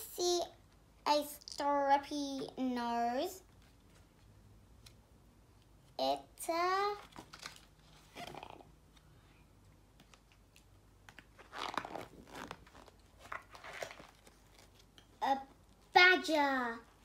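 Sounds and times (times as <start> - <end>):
cardboard page rustling and scraping: 11.4 - 14.9.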